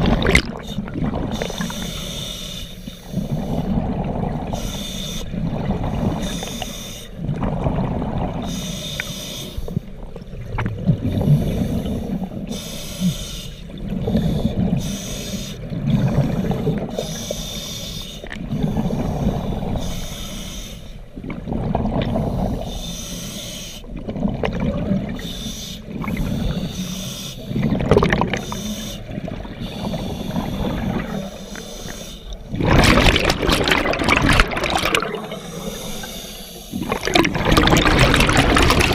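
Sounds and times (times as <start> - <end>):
exhaled bubbles rumbling underwater: 0.0 - 2.2, 2.9 - 12.7, 13.6 - 17.4, 18.2 - 20.1, 21.0 - 22.9, 23.8 - 38.9
regulator inhale hiss: 0.7 - 3.6, 4.6 - 5.4, 6.2 - 7.2, 8.4 - 9.8, 11.3 - 15.7, 16.4 - 21.1, 22.3 - 23.9, 25.2 - 27.6, 28.4 - 32.5, 35.2 - 36.8.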